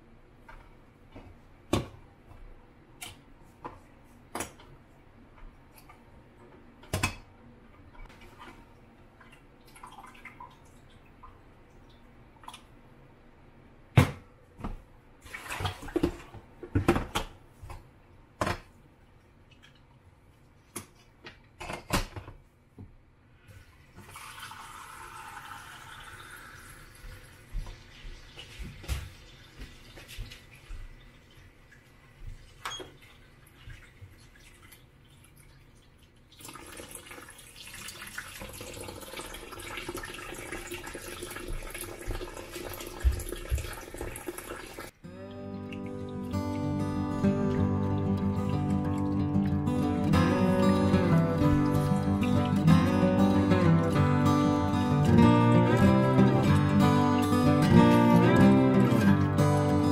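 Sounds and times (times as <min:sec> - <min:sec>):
tap water running: 0:23.7 - 0:45.0, 0:45.6 - 0:59.9.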